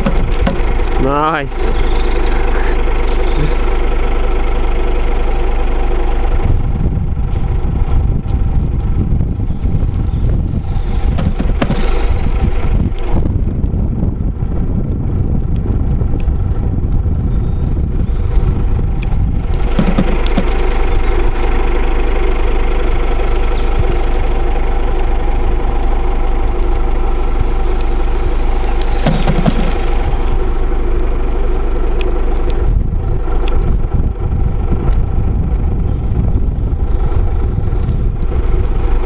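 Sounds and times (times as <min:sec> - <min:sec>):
sharp knocks: 0:00.0 - 0:01.0, 0:11.1 - 0:12.3, 0:19.6 - 0:20.8, 0:28.8 - 0:30.1
low microphone rumble: 0:00.0 - 0:39.0
vehicle engine idling: 0:00.0 - 0:39.0.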